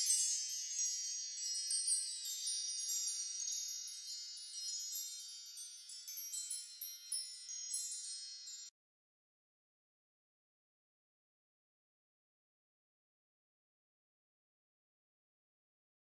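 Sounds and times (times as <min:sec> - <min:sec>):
wind chimes tinkling: 0:00.0 - 0:08.7.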